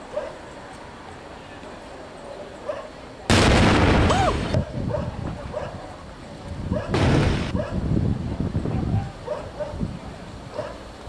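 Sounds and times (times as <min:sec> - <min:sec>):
demolition charge blast: 0:03.3 - 0:04.6, 0:06.9 - 0:07.6.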